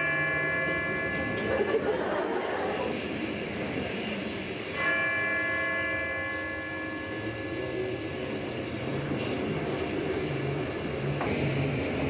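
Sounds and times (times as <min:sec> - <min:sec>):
ringing chord: 0:00.0 - 0:02.4, 0:04.6 - 0:10.2
steady rushing noise: 0:00.0 - 0:12.0.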